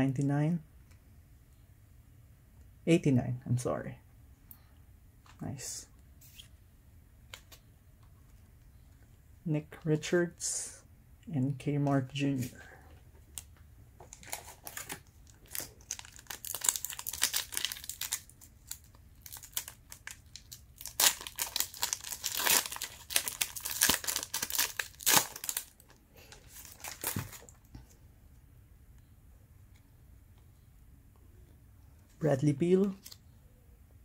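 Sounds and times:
wrapper crinkling and tearing: 14.1s - 27.6s.

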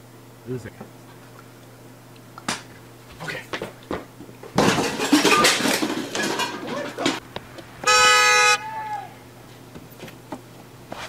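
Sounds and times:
car horn blast: 7.8s - 8.6s.

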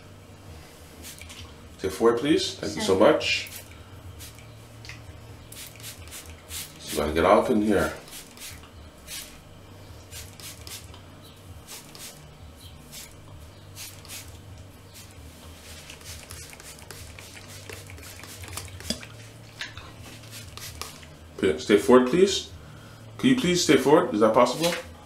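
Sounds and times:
hands rustling through wet hair: 15.0s - 21.1s.

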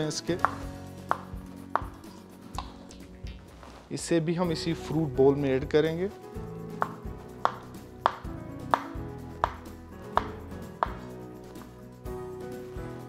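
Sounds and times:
knife chopping on wooden board: 0.4s - 2.8s, 6.8s - 11.1s.

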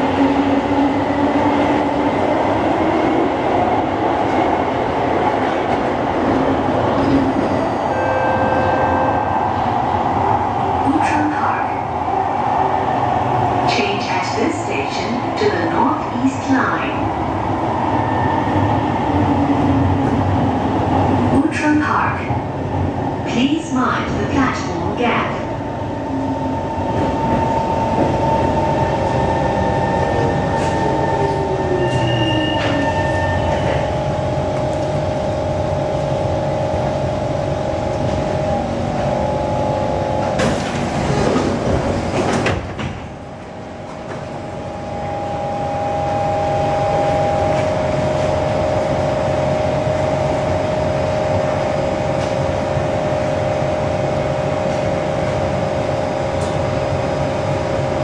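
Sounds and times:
sliding doors opening rush: 36.8s - 44.8s.

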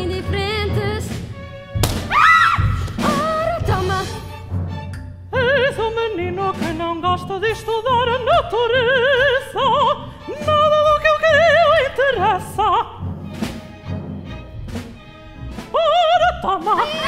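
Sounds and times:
orchestral accompaniment: 0.0s - 17.0s
operatic voice singing: 5.3s - 13.1s, 15.6s - 17.0s.

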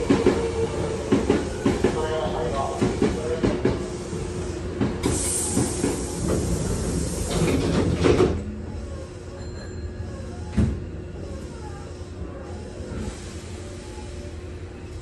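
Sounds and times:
air hiss from train doors: 0.0s - 8.4s, 12.5s - 14.6s
train doors sliding shut: 0.0s - 8.6s, 10.4s - 11.0s
train hum: 0.0s - 15.0s.

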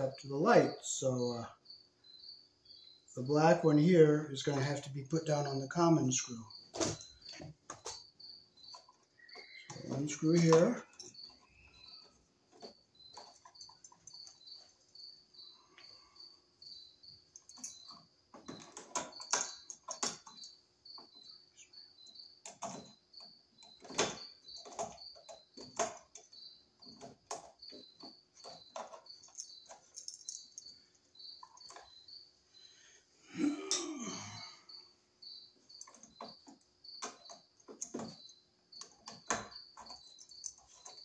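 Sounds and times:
steady high chirp: 0.0s - 41.0s
tools clicking and scraping: 23.6s - 32.0s.

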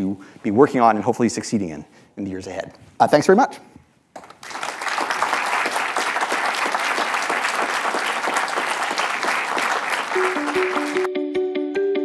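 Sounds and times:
audience applauding: 4.2s - 11.1s.

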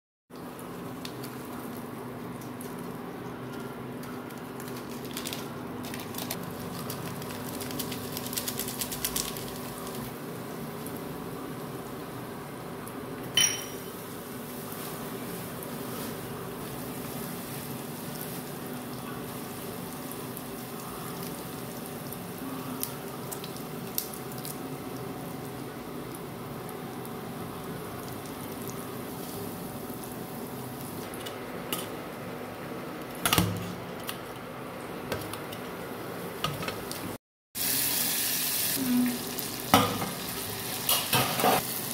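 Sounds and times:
sharp ringing metallic clink: 13.4s - 13.9s
spices clinking into steel pot: 13.4s - 14.0s.

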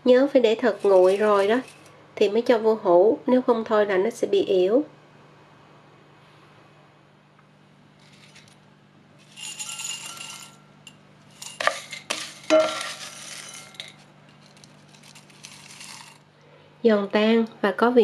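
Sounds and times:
fried shallots rustling: 0.6s - 1.9s, 8.0s - 8.6s, 11.2s - 16.3s
glass clinking against bowl: 12.5s - 13.8s.

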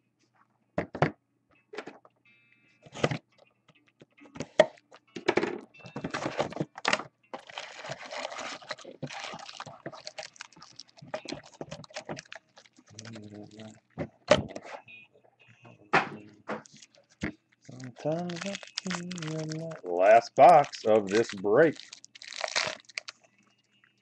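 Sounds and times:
plastic wrapping rustling: 6.0s - 14.3s, 16.6s - 24.0s.

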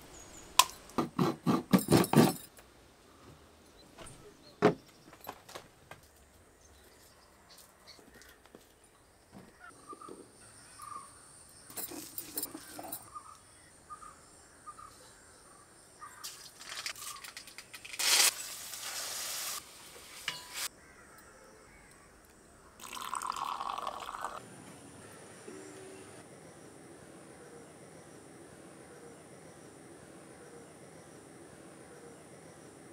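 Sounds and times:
birds chirping: 6.2s - 16.4s
hot pan hissing: 18.0s - 20.7s
liquid pouring from jar: 22.8s - 24.4s.

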